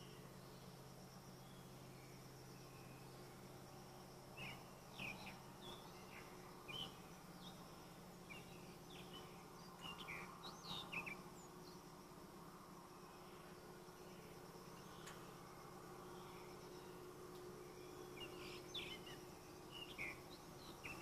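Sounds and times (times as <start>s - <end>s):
faint insect drone: 0.0s - 21.0s
small birds chirping: 0.0s - 21.0s
steady low hum: 0.0s - 21.0s.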